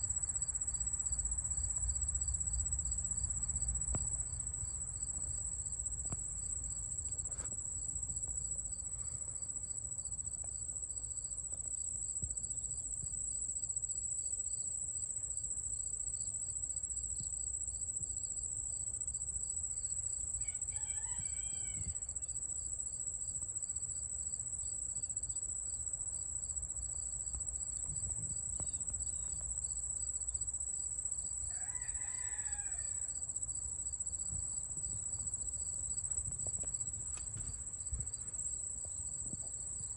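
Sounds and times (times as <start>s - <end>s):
high-pitched insect chorus: 19.1s - 24.0s, 28.6s - 39.9s
rooster crowing: 20.4s - 22.1s, 31.5s - 33.2s.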